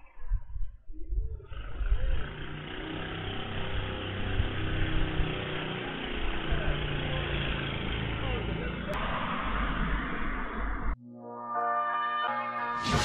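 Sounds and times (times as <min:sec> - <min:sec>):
small motorbike engine passing: 0:01.5 - 0:11.0.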